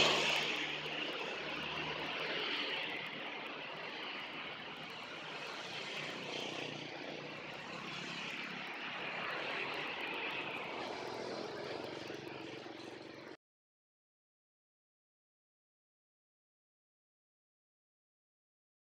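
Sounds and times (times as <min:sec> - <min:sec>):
traffic passing close by: 0:00.0 - 0:13.4.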